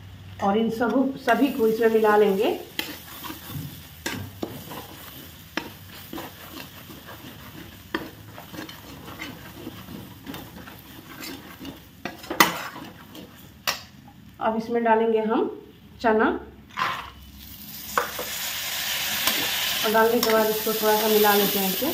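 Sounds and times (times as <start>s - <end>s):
spices sizzling in oil: 0.7s - 13.8s, 17.2s - 21.9s
metal spatula scraping pan: 1.3s - 13.5s.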